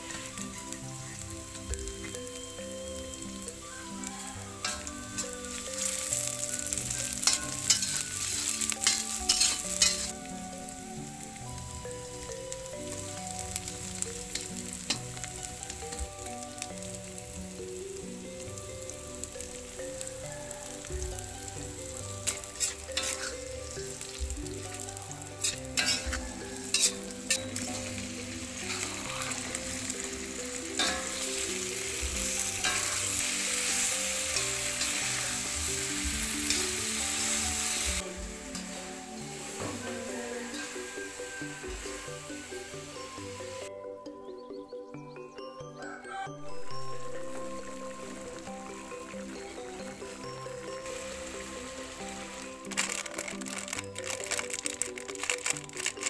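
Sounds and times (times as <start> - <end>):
aromatics sizzling in hot oil: 0.0 - 43.7, 46.5 - 56.0
metal spatula scraping wok: 4.6 - 10.2, 22.2 - 24.2, 25.4 - 41.3.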